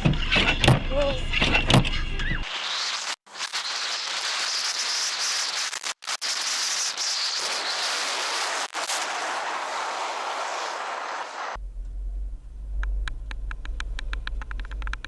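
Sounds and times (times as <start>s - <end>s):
rushing wind: 6.2s - 15.0s
motorcycle road noise: 7.3s - 15.0s.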